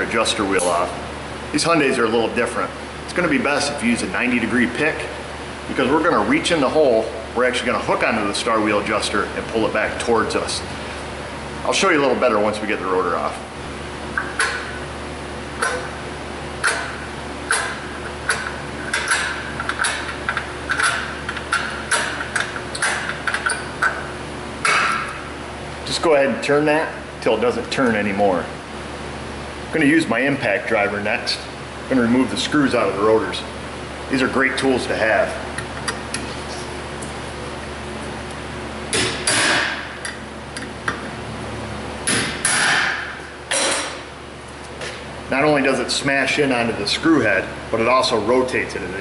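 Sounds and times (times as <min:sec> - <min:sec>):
hammer striking impact driver: 0:38.9 - 0:39.8, 0:42.0 - 0:43.9.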